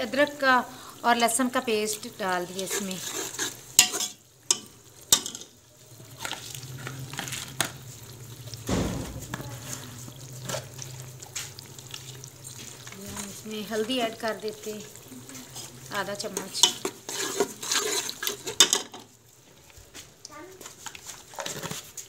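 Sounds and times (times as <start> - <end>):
onions sizzling in oil: 0.0 - 22.0
dull thump: 8.7 - 9.5.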